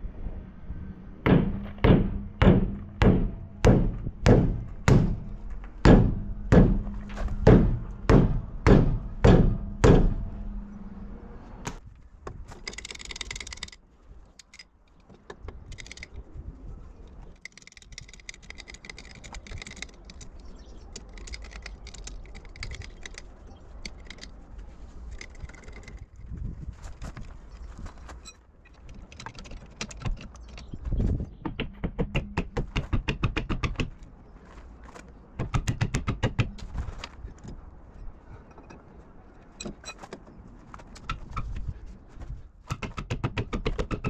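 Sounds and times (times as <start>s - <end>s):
metallic clicks and rattles: 12.4s - 16.2s, 17.1s - 26.2s, 28.2s - 30.8s.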